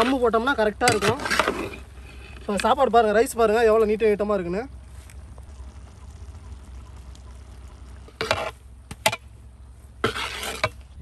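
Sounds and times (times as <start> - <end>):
metal ladle scraping rice: 8.2 - 8.6, 10.0 - 10.8.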